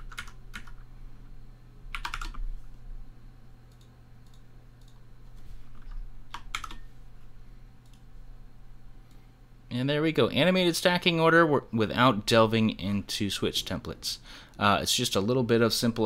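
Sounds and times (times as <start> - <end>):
keyboard keys tapping: 0.0 - 0.8, 1.9 - 2.4, 5.8 - 6.8
low steady hum: 0.0 - 16.0.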